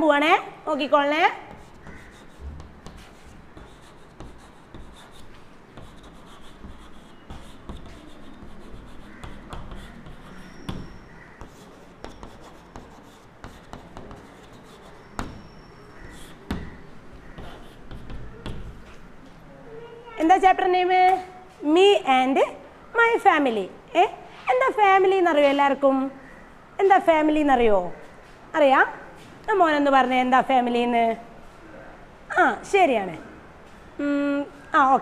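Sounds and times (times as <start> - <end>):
chalk tapping on chalkboard: 1.5 - 19.0
chalk scratching on chalkboard: 1.5 - 19.1.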